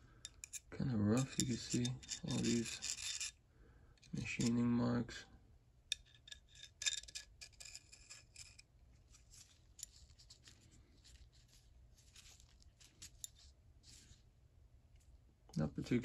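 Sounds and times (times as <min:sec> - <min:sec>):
metal pick clicks and scrapes: 0:00.2 - 0:03.4, 0:05.9 - 0:11.5, 0:12.1 - 0:14.0.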